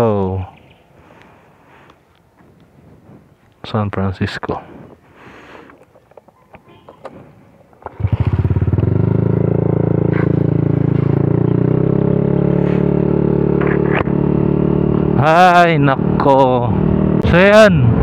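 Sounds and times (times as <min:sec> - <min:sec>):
motor scooter engine running: 0:07.8 - 0:15.2.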